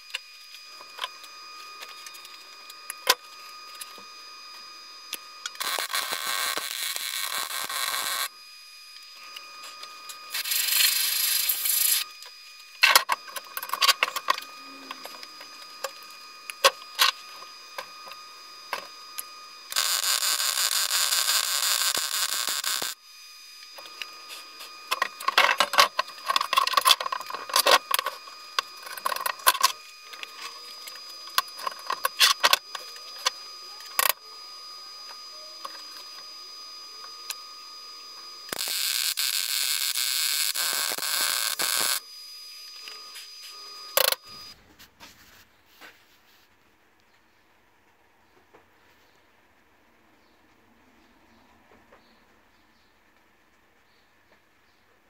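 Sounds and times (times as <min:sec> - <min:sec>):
welder arc crackling hiss: 0:00.0 - 0:46.4.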